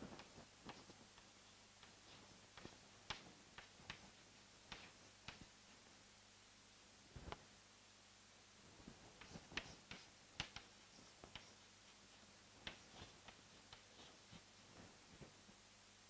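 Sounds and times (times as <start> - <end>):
chalk tapping and scratching: 0.2 - 5.6, 8.9 - 15.4.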